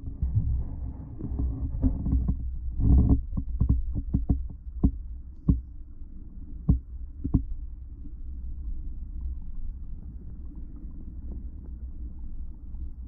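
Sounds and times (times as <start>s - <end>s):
low underwater rumble: 0.0s - 13.0s
sharp clicks and knocks: 1.4s - 5.6s.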